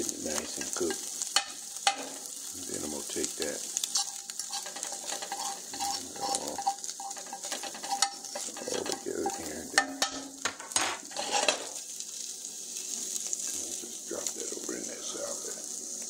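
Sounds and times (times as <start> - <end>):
meat sizzling in a frying pan: 0.0 - 16.0
metal fork scraping a pan: 0.4 - 2.4, 3.8 - 11.8.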